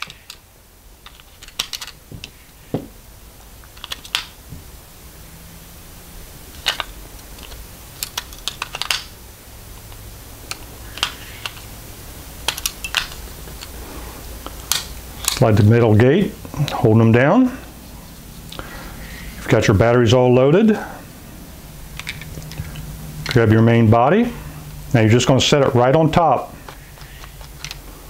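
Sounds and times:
batteries clicking into holder: 0.0 - 0.4, 1.0 - 2.4, 3.6 - 4.3, 6.6 - 9.2, 9.8 - 11.7, 12.4 - 13.8, 22.0 - 23.4, 26.6 - 27.8.

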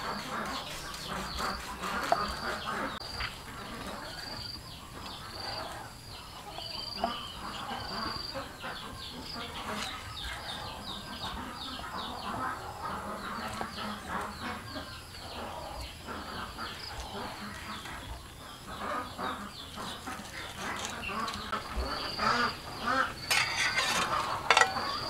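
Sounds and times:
chickens clucking: 0.0 - 25.0.

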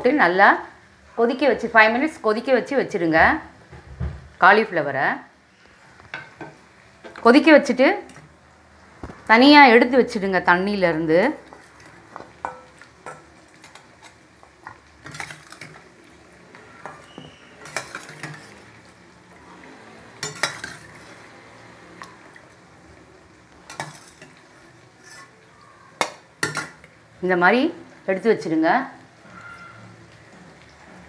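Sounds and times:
faint sizzle: 0.0 - 31.0
spoon scraping a pan: 6.0 - 7.3, 11.3 - 18.9, 20.1 - 21.3, 23.6 - 25.4, 26.0 - 27.0, 29.2 - 30.0.

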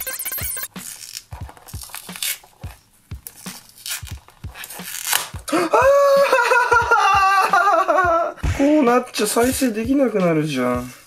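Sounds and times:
glue film crackling and tearing: 0.7 - 5.4.

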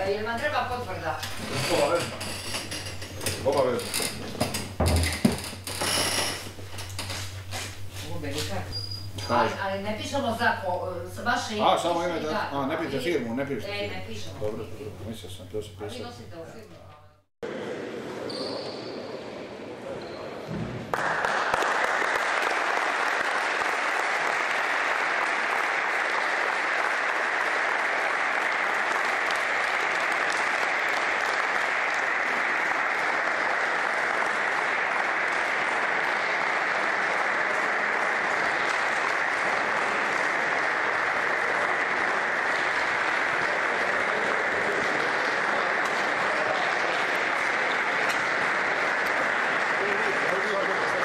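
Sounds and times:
audience applauding: 20.8 - 51.0.

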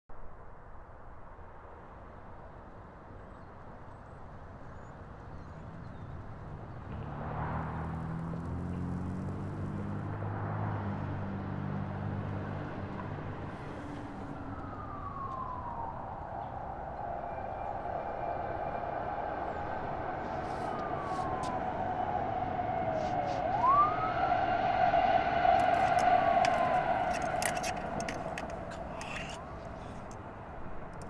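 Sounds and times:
street traffic: 2.8 - 31.0
low droning engine hum: 5.4 - 31.0
tone gliding downward: 13.6 - 30.2.

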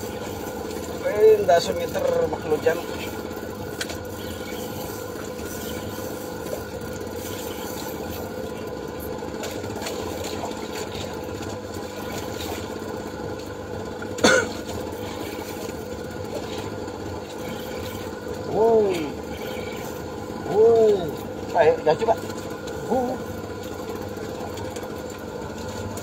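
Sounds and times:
engine hum: 0.0 - 26.0
short cough-like sound: 14.2 - 14.6.

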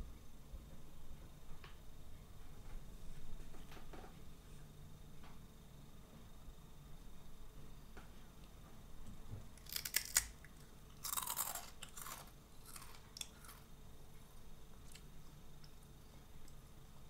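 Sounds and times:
snack sticks cracking: 9.6 - 13.6
crunching chewing: 9.6 - 15.8.

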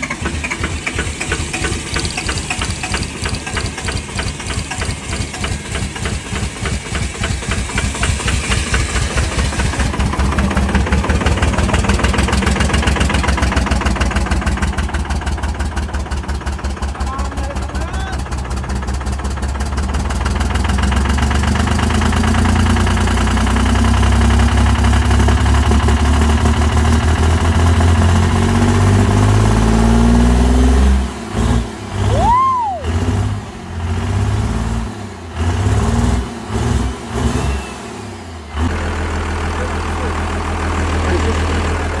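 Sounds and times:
diesel engine running: 0.0 - 42.0
rising and falling whistle: 32.1 - 33.0.

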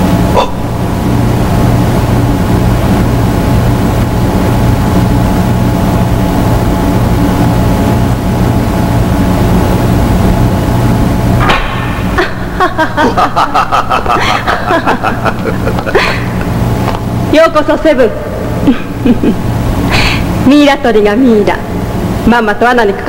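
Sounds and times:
low electronic hum: 0.0 - 23.0.

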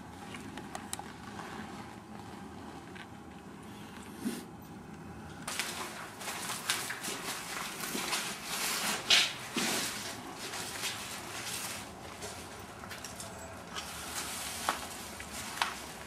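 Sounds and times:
footsteps crunching over debris: 5.4 - 16.0.

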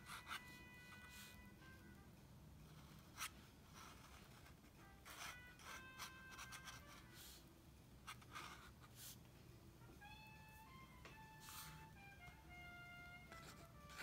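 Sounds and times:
pen nib scratching on paper: 2.6 - 7.4, 8.1 - 9.2, 13.3 - 14.0.

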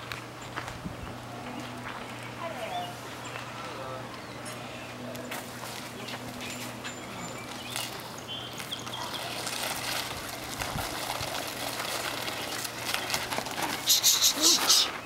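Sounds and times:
outdoor background hum: 0.0 - 15.0.

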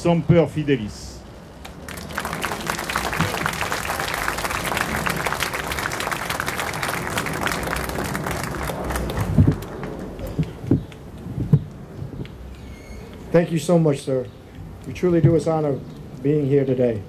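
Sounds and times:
audience applause: 1.6 - 10.2.

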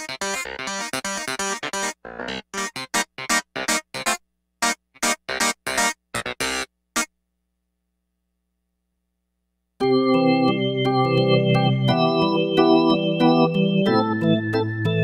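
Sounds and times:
synthesizer organ chords: 0.0 - 7.2, 9.8 - 15.0.

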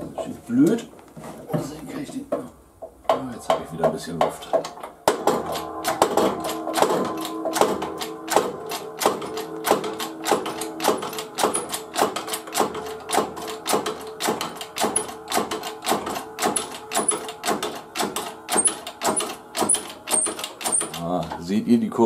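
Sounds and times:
hydraulic press clicking: 4.6 - 21.0.

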